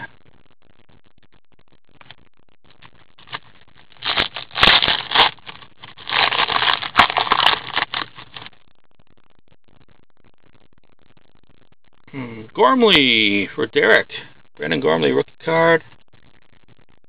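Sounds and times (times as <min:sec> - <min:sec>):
foil wrapper tearing and crinkling: 0:03.2 - 0:08.5.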